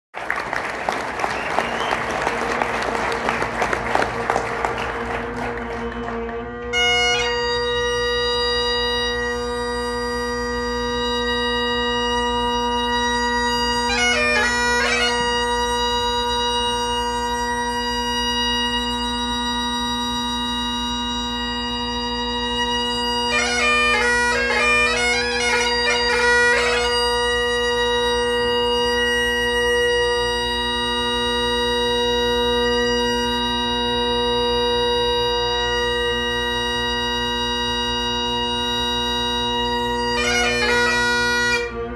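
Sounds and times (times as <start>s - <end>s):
applause: 0.1s - 6.7s
bagpipe playing: 0.5s - 41.9s.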